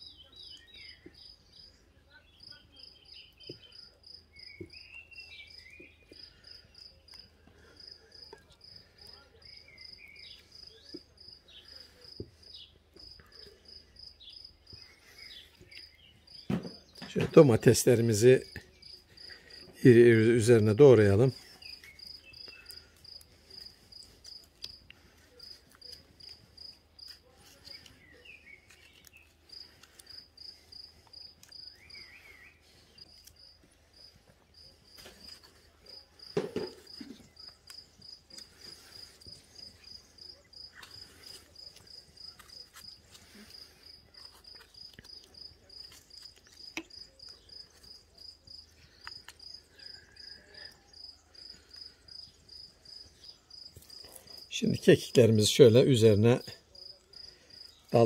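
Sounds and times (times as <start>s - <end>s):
cricket chirping: 21.2s - 27.2s, 33.0s - 54.9s.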